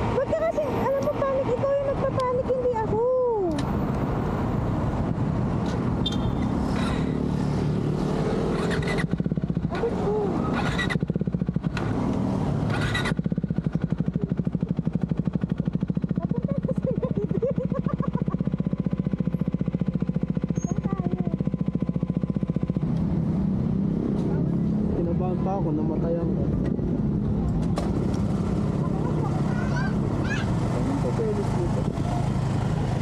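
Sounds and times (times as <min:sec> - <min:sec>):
passing traffic: 0:00.0 - 0:33.0
motorcycle engine idling: 0:08.5 - 0:33.0.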